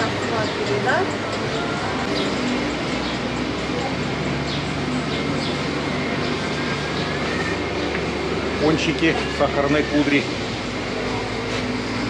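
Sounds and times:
mechanical drone with hiss: 0:00.0 - 0:12.0.

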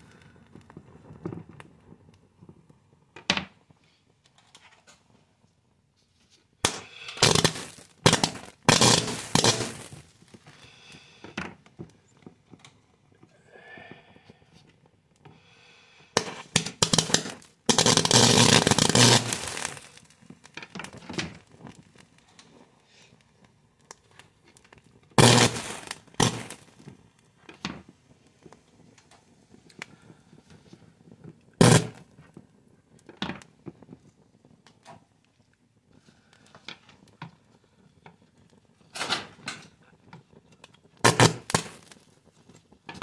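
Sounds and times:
circuit board crackling and popping: 0:06.6 - 0:10.9, 0:16.2 - 0:22.5, 0:23.8 - 0:27.8, 0:31.5 - 0:32.2, 0:40.4 - 0:43.0.

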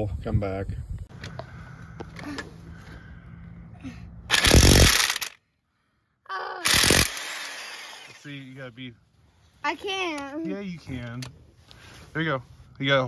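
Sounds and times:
impact wrench rattling: 0:04.3 - 0:05.4, 0:06.7 - 0:08.2.

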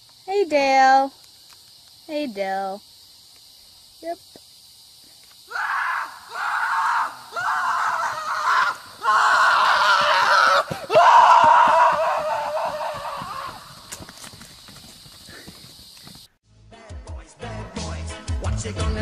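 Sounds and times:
person screaming: 0:05.5 - 0:13.7.

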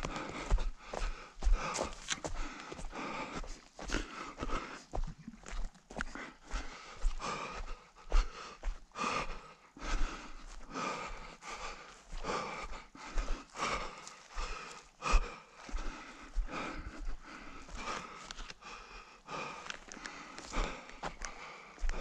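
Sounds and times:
running footsteps thudding: 0:00.0 - 0:07.6
runner breathing hard: 0:00.0 - 0:22.0.

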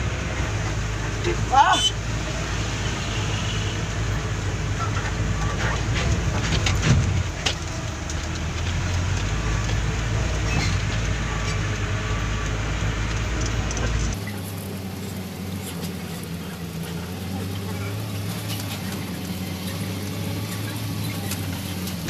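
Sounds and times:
diesel truck engine running: 0:00.0 - 0:22.0
knocks and rattles on gravel: 0:04.6 - 0:22.0.

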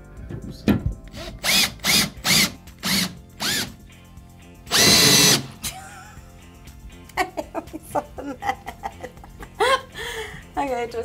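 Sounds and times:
cordless drill winding: 0:01.1 - 0:03.8, 0:04.7 - 0:05.6.

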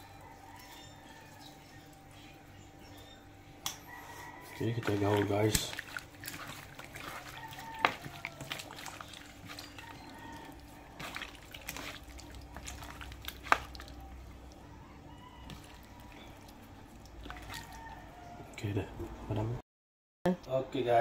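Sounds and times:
fish squelching mixed by hand: 0:00.0 - 0:19.2.

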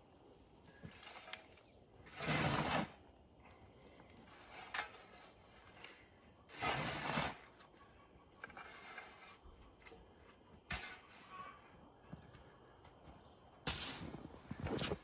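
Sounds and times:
shovel scraping into wood chips: 0:00.8 - 0:03.1, 0:04.2 - 0:07.6, 0:08.4 - 0:09.4, 0:10.7 - 0:11.5, 0:13.6 - 0:15.0.

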